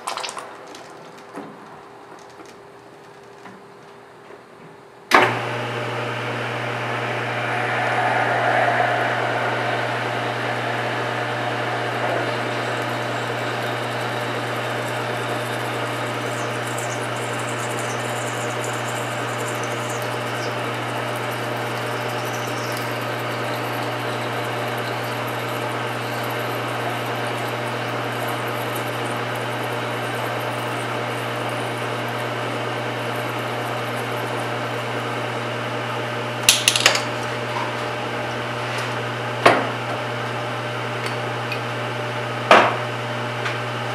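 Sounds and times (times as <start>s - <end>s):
metal lathe running: 6.9s - 20.6s.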